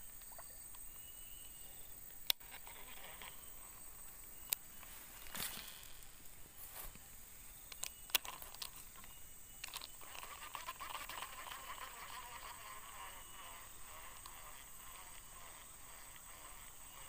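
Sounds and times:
faint high insect drone: 0.0s - 17.0s
fishing reel clicks and knocks: 4.5s - 6.1s, 7.7s - 17.0s
soft fast reel ticking: 7.5s - 17.0s.

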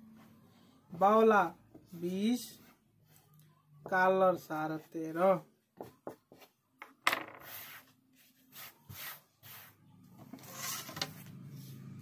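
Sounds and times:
ruler and cloth rubbing and scraping: 4.8s - 12.0s.

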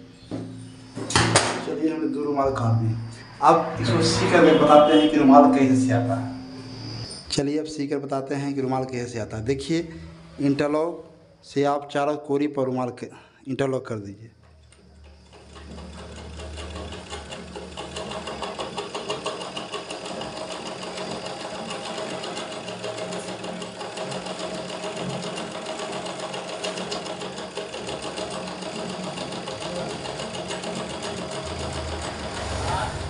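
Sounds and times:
sewing machine running: 14.5s - 33.0s.

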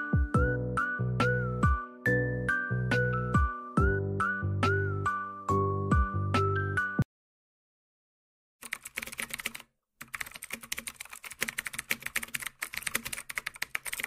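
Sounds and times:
rapid keyboard typing: 8.6s - 14.0s.

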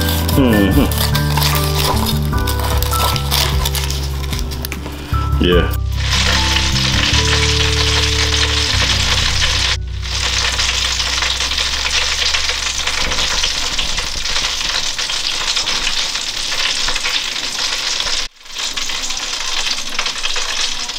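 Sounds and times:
low hum: 0.0s - 16.2s
hot oil sizzling: 0.0s - 20.9s.

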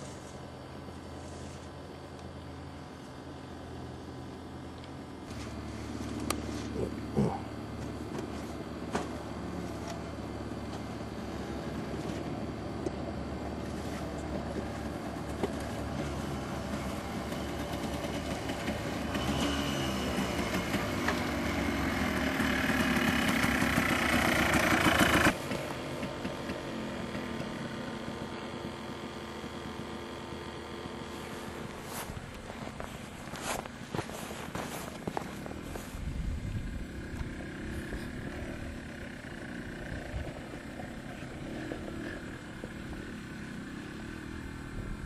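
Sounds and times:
two-stroke quad engine: 0.0s - 45.0s.

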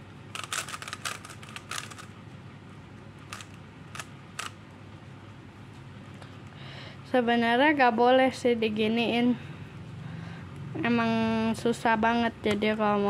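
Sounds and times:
puzzle cube layers clicking: 0.3s - 2.1s, 3.3s - 4.6s.

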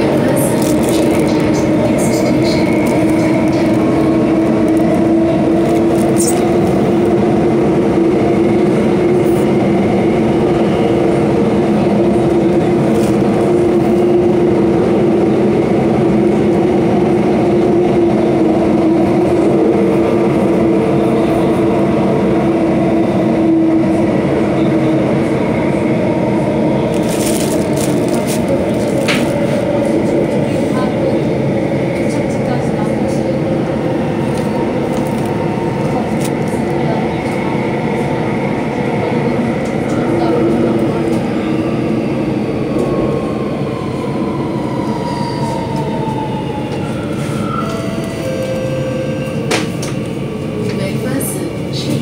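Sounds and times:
steady train hum: 0.0s - 52.0s
train wheels rumbling on rail: 0.0s - 52.0s.

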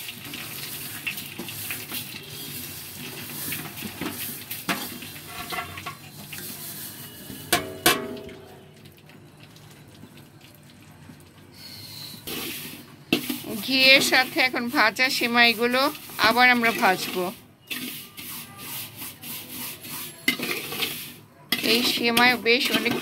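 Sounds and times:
noodles hissing in hot fat: 0.0s - 5.4s, 6.1s - 7.4s, 11.6s - 21.8s
wooden spatula scraping a pot: 0.2s - 7.6s, 12.1s - 23.0s.

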